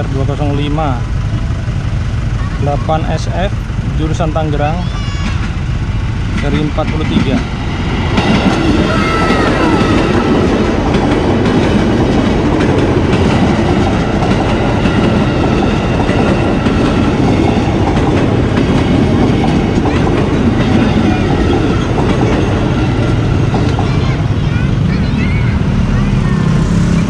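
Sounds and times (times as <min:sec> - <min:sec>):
electric train passing: 0:00.0 - 0:27.0
train wheels rolling on rails: 0:00.0 - 0:27.0.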